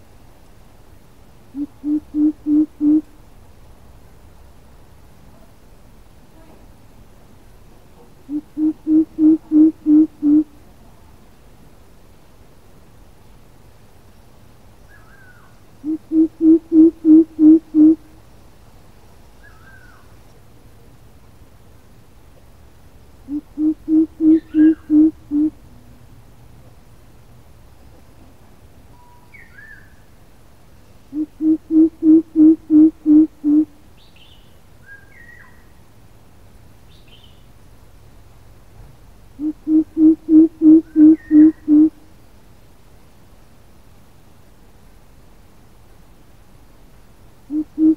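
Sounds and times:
bird calling deep hoots: 1.5s - 3.1s, 8.3s - 10.6s, 15.0s - 18.1s, 23.2s - 25.6s, 31.1s - 33.8s, 39.4s - 42.0s, 47.5s - 47.9s
short high bird chirps: 28.9s - 29.9s.

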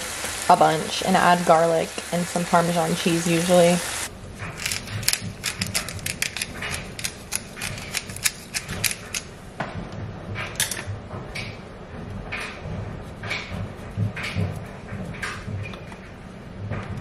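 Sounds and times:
spice grinder clicking: 4.6s - 9.3s.

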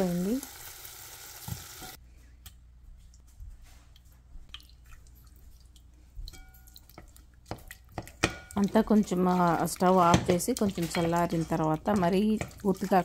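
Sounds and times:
wet squishing of stirring: 3.9s - 13.0s.

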